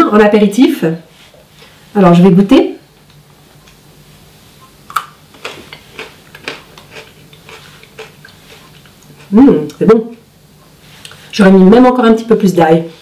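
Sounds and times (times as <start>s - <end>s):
person crunching a raw carrot: 4.9s - 9.8s.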